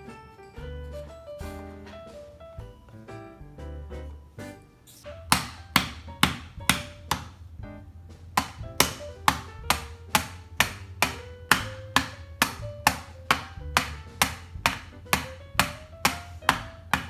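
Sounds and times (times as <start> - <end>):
hammer driving nail into wood: 5.3 - 7.4, 8.4 - 17.0.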